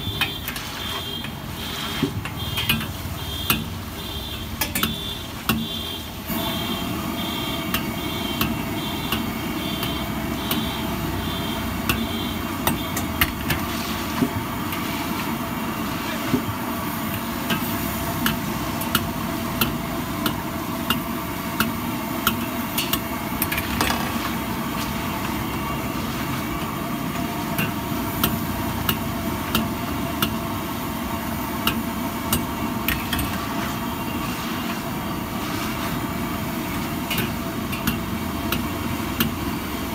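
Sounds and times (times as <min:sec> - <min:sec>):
oil frying hiss: 0:00.0 - 0:39.9
metal ladle scraping a wok: 0:00.1 - 0:03.7, 0:12.0 - 0:16.4, 0:22.5 - 0:27.9, 0:32.8 - 0:38.1.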